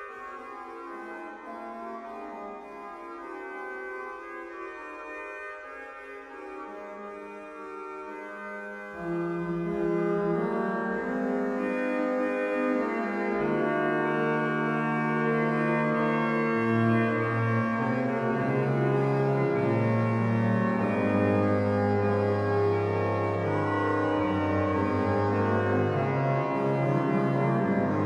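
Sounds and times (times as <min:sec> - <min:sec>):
pipe organ playing: 0:00.0 - 0:28.0
low organ bass notes: 0:08.8 - 0:28.0.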